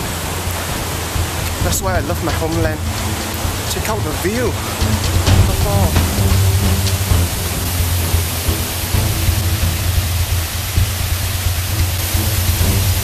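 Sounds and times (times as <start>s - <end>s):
background music: 0.0s - 13.0s
waterfall rushing over rock: 0.0s - 13.0s.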